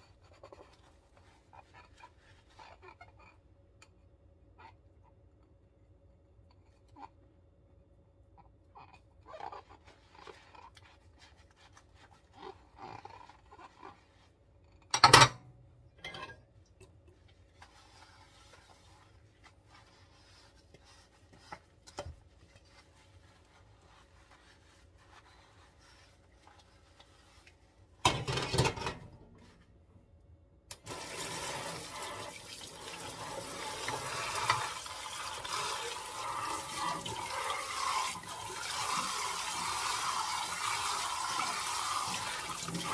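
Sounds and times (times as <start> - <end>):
dishes clinking: 15.0 - 16.5
sponge scrubbing dishes: 17.1 - 29.7, 30.8 - 42.9
tap water running: 30.7 - 42.9.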